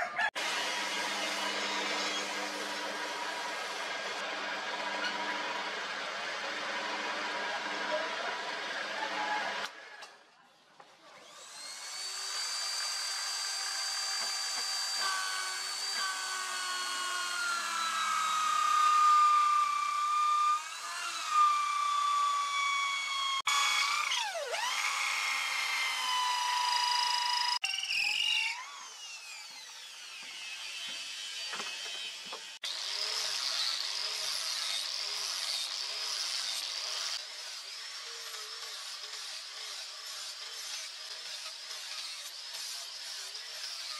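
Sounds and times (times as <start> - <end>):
lathe motor whine: 0.4 - 9.6
drill boring into wood: 0.4 - 9.7, 11.2 - 43.9
angle grinder sanding steel: 25.7 - 43.9.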